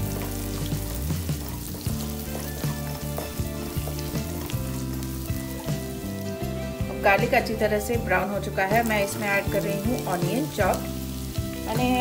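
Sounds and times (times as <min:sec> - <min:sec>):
garlic sizzling in butter: 0:00.0 - 0:12.0
soft background music: 0:00.0 - 0:12.0.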